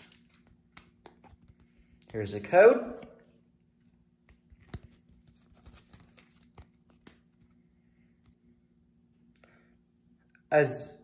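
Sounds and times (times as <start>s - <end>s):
trading cards clicking and rustling: 0.0s - 2.3s, 4.2s - 7.6s.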